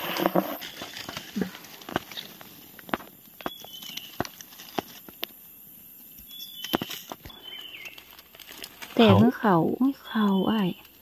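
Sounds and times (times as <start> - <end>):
footsteps on dry leaves and twigs: 0.0 - 5.4, 6.3 - 9.3.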